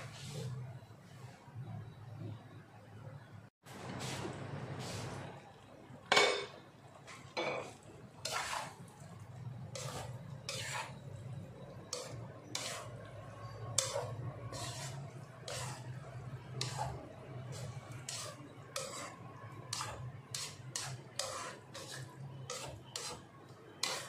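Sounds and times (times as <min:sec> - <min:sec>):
spatula scraping in frying pan: 0:00.0 - 0:01.3, 0:07.4 - 0:24.0.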